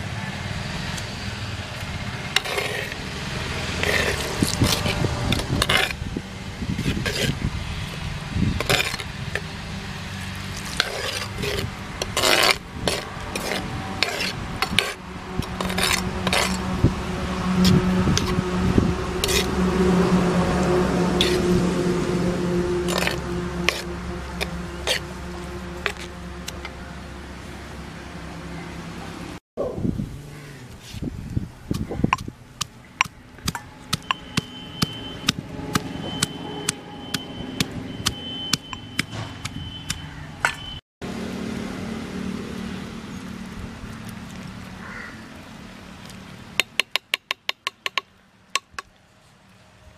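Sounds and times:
ladle scraping clay pot: 0:02.3 - 0:03.0, 0:03.7 - 0:06.0, 0:06.8 - 0:08.0, 0:08.6 - 0:09.5, 0:10.4 - 0:16.8, 0:19.2 - 0:19.8, 0:21.0 - 0:21.5, 0:22.8 - 0:26.7
low hum: 0:13.0 - 0:30.8
pestle pounding in stone mortar: 0:46.6 - 0:48.8.

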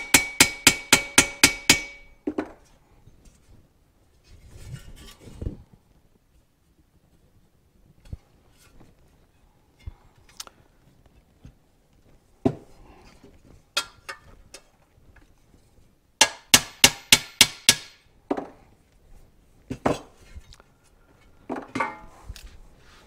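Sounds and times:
hammer striking metal: 0:00.0 - 0:02.2, 0:16.2 - 0:18.0.

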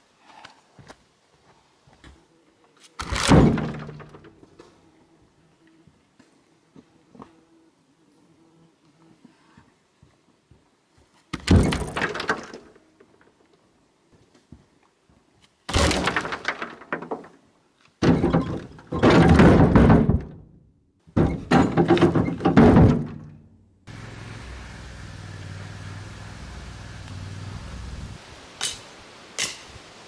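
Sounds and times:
rough knocking and cracking: 0:11.4 - 0:12.8, 0:15.7 - 0:17.4, 0:18.0 - 0:20.4, 0:21.2 - 0:23.4.

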